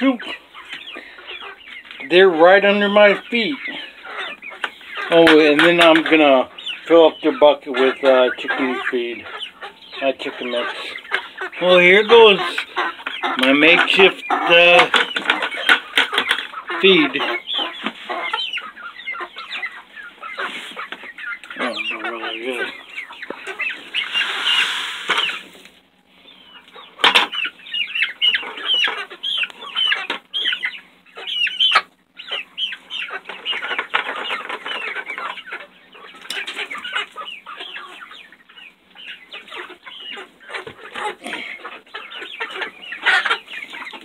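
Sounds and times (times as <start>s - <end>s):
chickens clucking: 0.0s - 44.0s.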